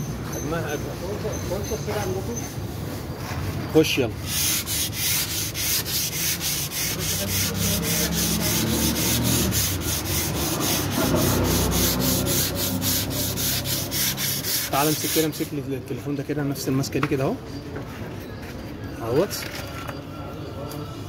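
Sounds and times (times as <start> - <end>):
sandpaper rubbing back and forth: 2.1 - 15.6.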